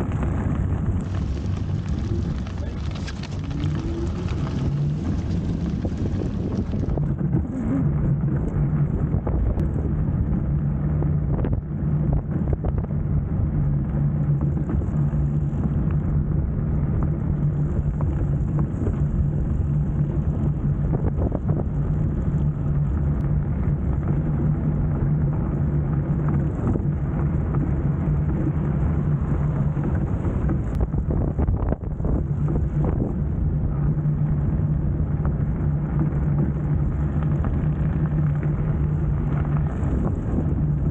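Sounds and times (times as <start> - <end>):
tyres on wet road: 0.0 - 9.1
low hum: 0.0 - 40.9.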